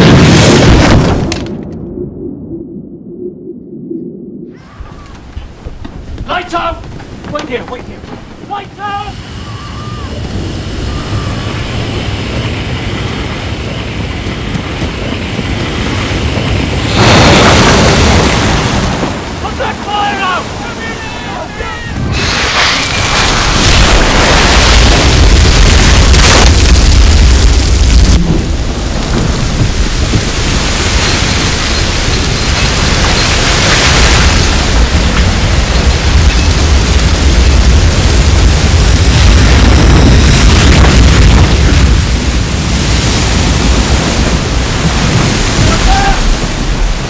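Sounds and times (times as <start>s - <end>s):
gas and oil venting rush: 4.6s - 47.0s
oil well gusher roaring: 8.7s - 14.6s.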